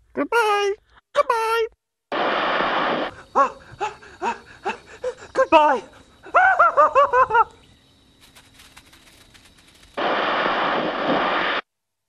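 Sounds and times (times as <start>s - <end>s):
videotape static hiss: 2.1s - 3.3s, 8.2s - 11.7s
faint clicks: 8.2s - 10.0s.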